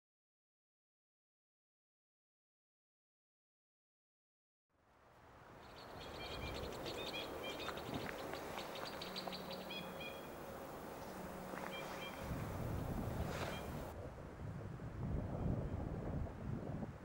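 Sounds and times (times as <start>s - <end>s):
background hiss: 4.9s - 13.9s
birds calling in short high notes: 5.7s - 12.3s, 13.2s - 13.9s.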